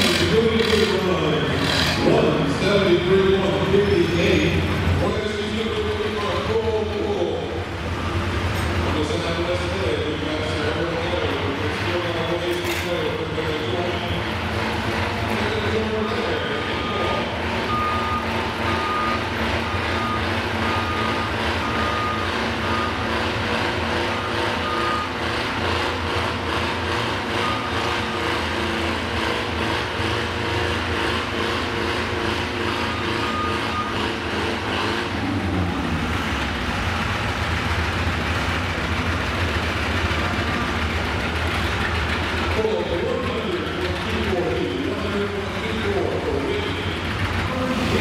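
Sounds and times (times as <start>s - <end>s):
tractor engines idling: 0.0s - 48.0s
backup alarm beeping: 7.9s - 8.5s, 15.6s - 23.2s, 24.0s - 25.2s, 32.8s - 34.2s.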